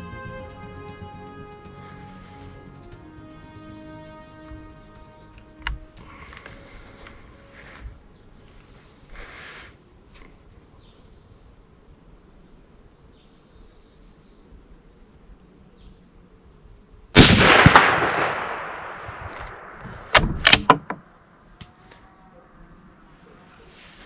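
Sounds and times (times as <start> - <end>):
rifle shot with echo: 17.2 - 20.8
rifle bolt clicks: 19.3 - 20.9.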